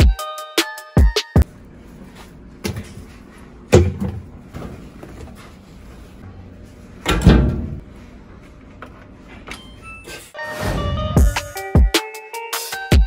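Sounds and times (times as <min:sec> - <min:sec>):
washing machine knocks and thuds: 0:03.7 - 0:04.3, 0:07.1 - 0:07.8.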